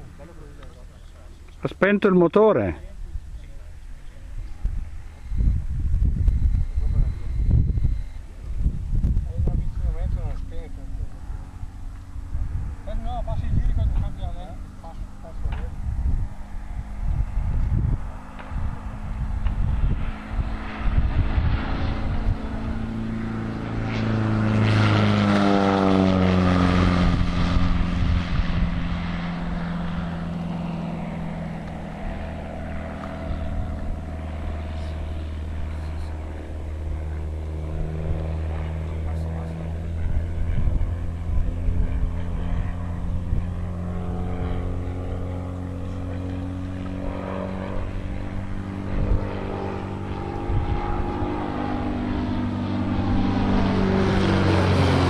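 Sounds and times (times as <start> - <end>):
propeller aircraft flying overhead: 0.0 - 55.0.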